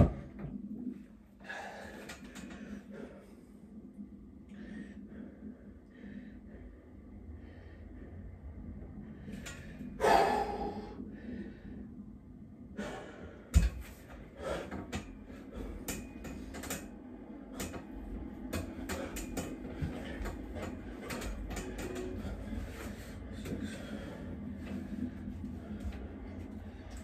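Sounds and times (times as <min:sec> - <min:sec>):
man breathing hard: 0:01.4 - 0:03.8, 0:04.4 - 0:27.0
clicks and knocks from metal bars: 0:18.5 - 0:22.4.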